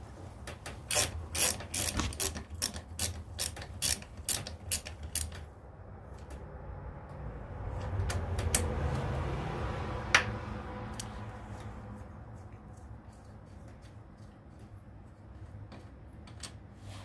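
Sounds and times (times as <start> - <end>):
hand ratchet clicking: 0.5 - 5.5.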